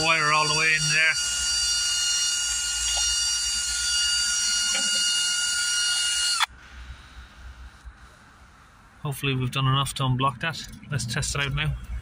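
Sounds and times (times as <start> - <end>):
cordless drill whining: 0.0 - 6.5.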